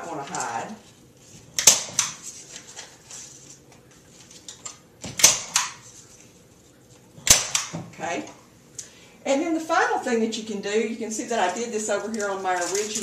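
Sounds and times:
staple gun snapping: 5.2 - 5.8, 7.3 - 7.8.

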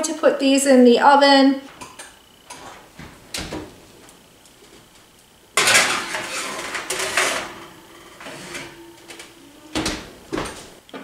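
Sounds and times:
metal pan clattering and scraping: 5.6 - 8.9.

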